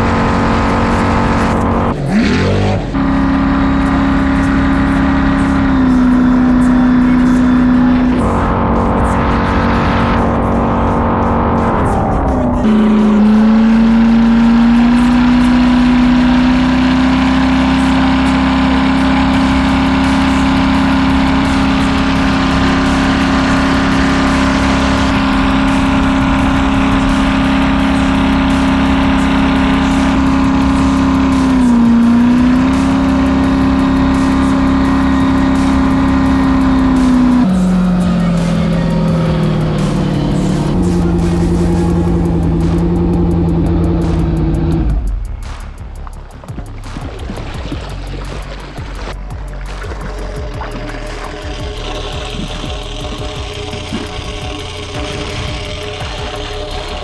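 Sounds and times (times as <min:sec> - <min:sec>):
jet ski engine running hard: 0:00.0 - 0:45.2, 0:46.7 - 0:57.0
water rushing past: 0:46.3 - 0:52.6.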